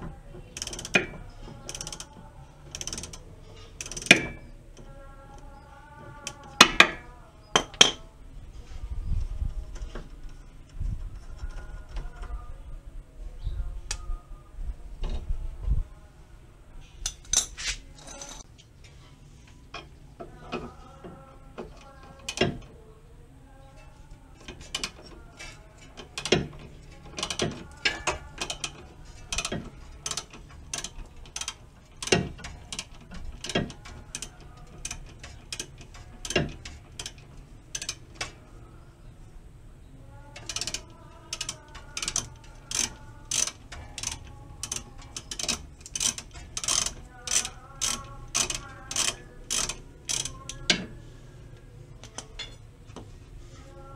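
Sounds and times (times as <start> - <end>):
hand ratchet clicking: 0.6 - 5.5, 24.4 - 38.4, 40.4 - 51.0.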